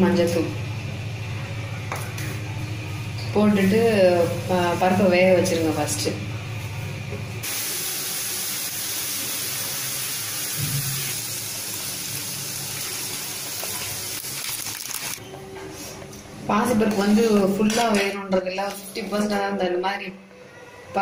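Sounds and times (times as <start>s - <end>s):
gas flame hissing: 7.4s - 14.4s
water boiling in a pot: 7.4s - 15.2s.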